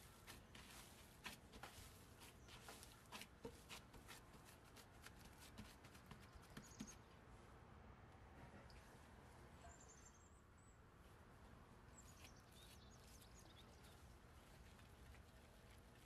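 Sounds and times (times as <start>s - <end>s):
hands kneading soft mash: 0.0s - 7.0s, 12.0s - 16.0s.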